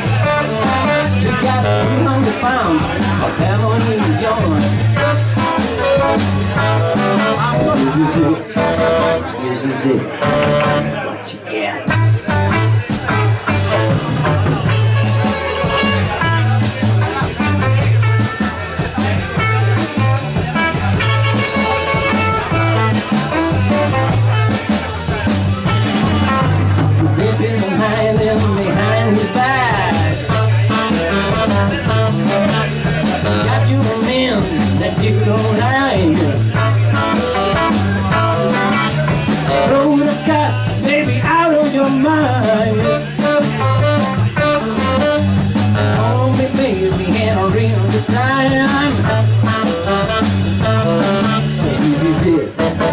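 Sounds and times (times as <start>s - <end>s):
tenor saxophone: 0.0s - 2.6s, 4.8s - 11.0s, 11.9s - 26.8s, 29.7s - 33.7s, 36.4s - 40.0s, 42.8s - 46.3s, 48.5s - 52.9s
electric guitar: 0.0s - 11.1s, 11.8s - 52.9s
electric bass: 0.0s - 11.2s, 11.8s - 52.9s
blues band playing: 0.0s - 52.9s
drums: 0.0s - 52.9s.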